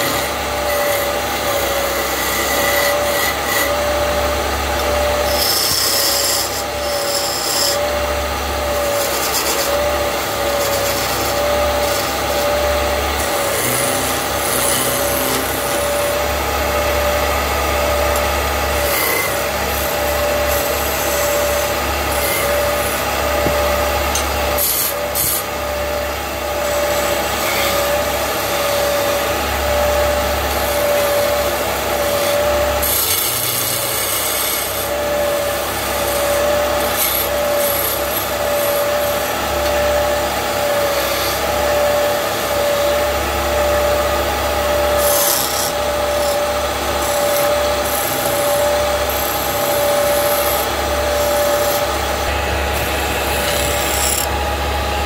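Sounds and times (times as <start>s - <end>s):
wood lathe hum: 0.0s - 55.0s
chisel scraping wood: 44.9s - 54.3s.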